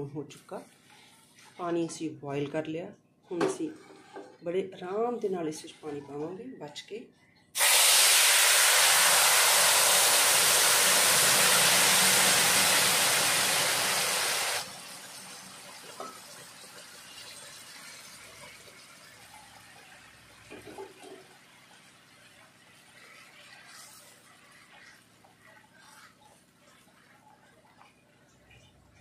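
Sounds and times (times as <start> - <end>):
steam hissing and sizzling: 7.6 - 20.0
food bubbling: 8.6 - 29.0.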